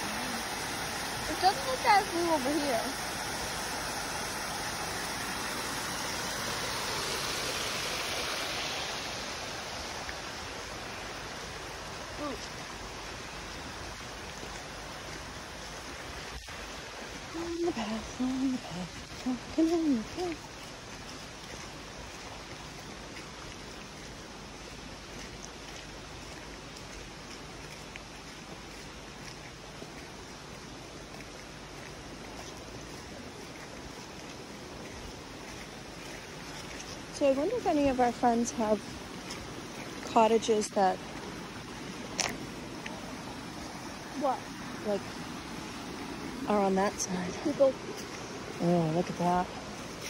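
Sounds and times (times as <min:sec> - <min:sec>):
waterfall and stream over rocks: 0:00.0 - 0:50.0
faint ticks: 0:42.1 - 0:43.0.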